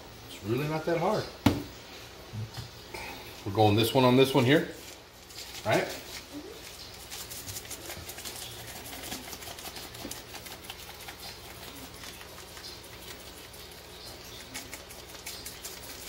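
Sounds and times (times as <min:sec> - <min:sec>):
seasoning shaker patter: 0:03.5 - 0:16.0.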